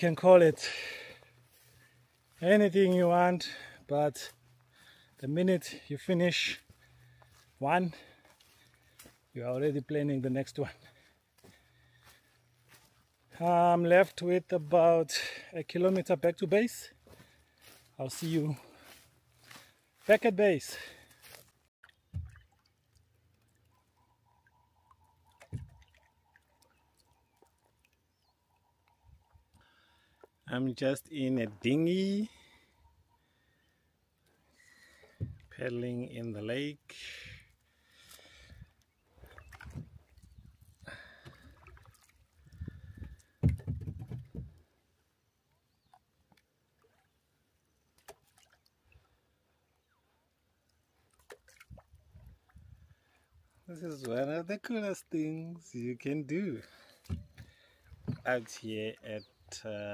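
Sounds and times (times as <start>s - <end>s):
faint knocks of paddling dinghy: 22.0s - 22.5s, 25.0s - 26.0s, 57.0s - 58.5s
dull low thump: 43.4s - 44.6s.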